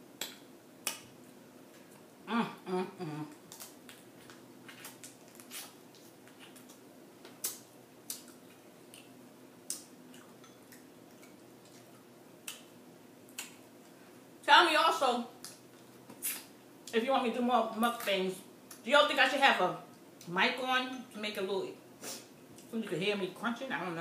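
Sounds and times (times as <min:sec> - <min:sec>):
person humming: 0:02.3 - 0:03.4
chewing and mouth noises: 0:03.3 - 0:12.7.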